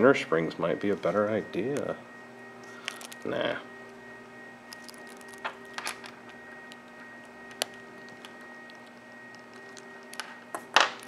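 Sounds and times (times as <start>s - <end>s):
steady electrical hum: 0.0s - 11.0s.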